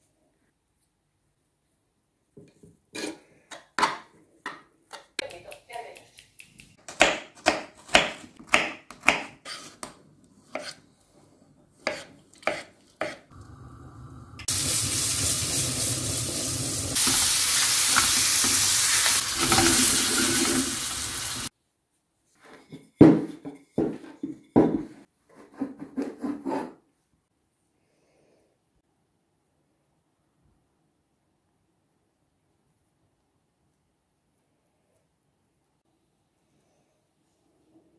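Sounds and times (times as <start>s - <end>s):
steady hiss: 14.1s - 21.5s.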